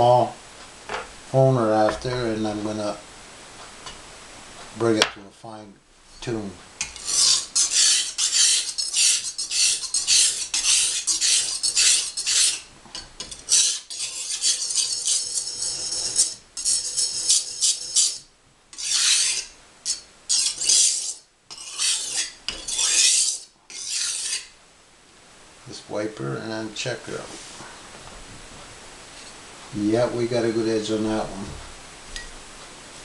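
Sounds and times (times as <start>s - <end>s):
knife scraping on sharpening stone: 6.8s - 24.5s.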